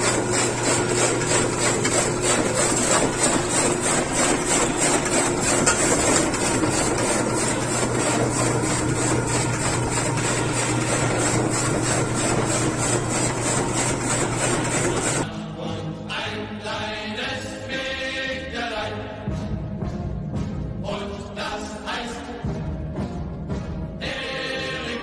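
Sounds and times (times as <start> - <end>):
forage chopper chopping grass: 0.0 - 15.2
music: 15.2 - 25.0.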